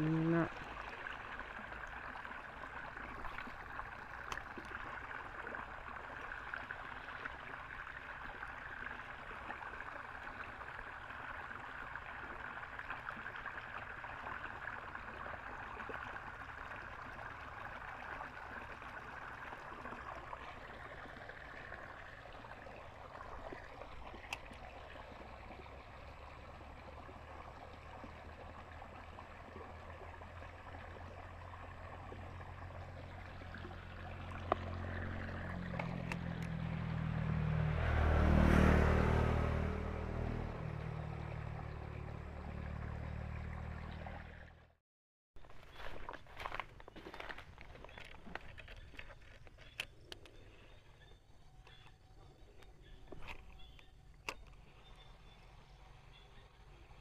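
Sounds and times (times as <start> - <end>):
water trickling in ditch: 0.0 - 44.7, 45.4 - 57.0.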